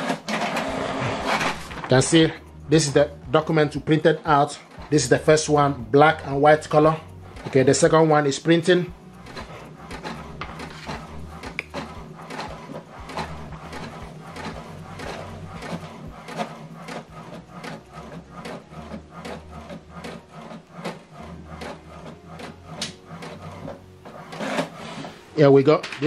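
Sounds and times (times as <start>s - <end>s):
printer carriage shuttling: 0.0s - 2.3s, 9.2s - 17.8s, 20.0s - 26.0s
printer motor humming: 0.0s - 25.3s.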